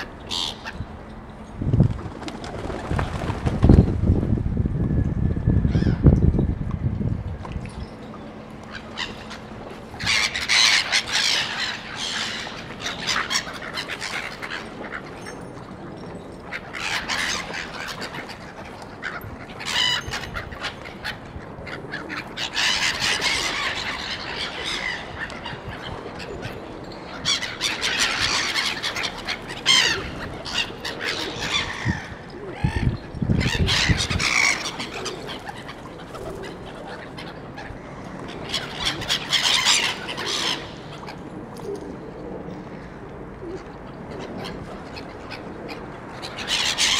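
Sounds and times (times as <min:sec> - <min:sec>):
gulls squawking: 0:00.0 - 0:01.2, 0:08.4 - 0:15.3, 0:16.4 - 0:41.4, 0:43.5 - 0:46.9.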